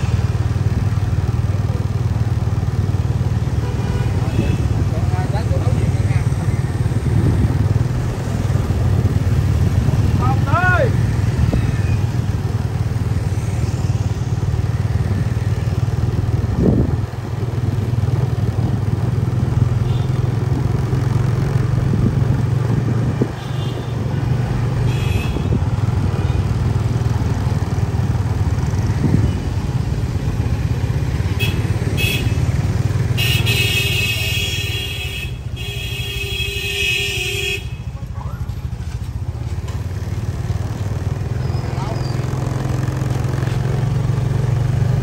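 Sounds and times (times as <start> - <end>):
vehicle horn beeping: 24.8 - 25.6, 31.4 - 32.4, 33.2 - 38.0.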